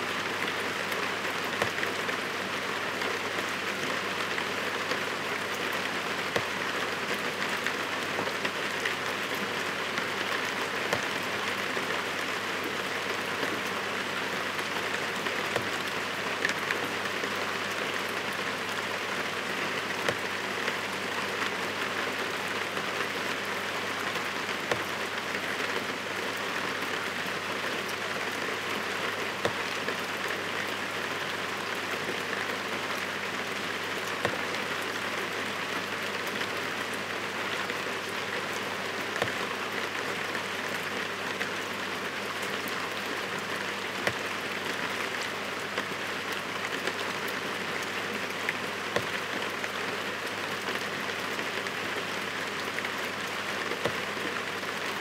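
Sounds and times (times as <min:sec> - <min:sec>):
heavy rain: 0:00.0 - 0:55.0.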